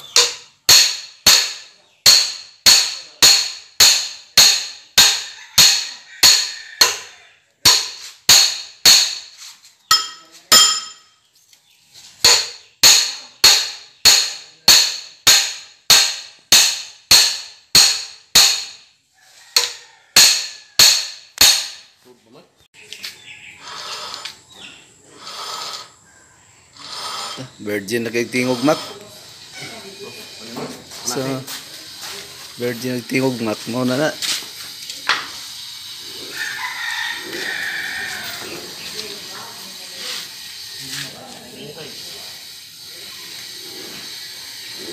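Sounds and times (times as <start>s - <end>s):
hammer striking steel: 0.0s - 9.3s, 9.9s - 11.1s, 12.2s - 18.9s, 19.6s - 21.9s
light metal clinks: 9.9s - 11.2s.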